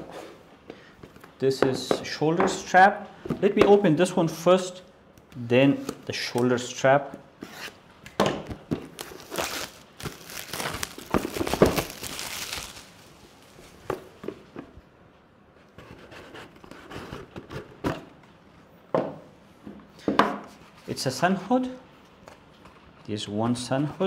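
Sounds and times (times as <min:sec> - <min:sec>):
cardboard rustling: 0:08.8 - 0:14.1.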